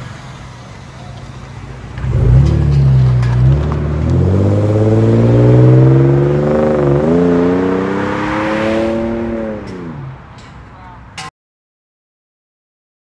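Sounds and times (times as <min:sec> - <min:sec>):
car exhaust accelerating: 0:00.0 - 0:10.2.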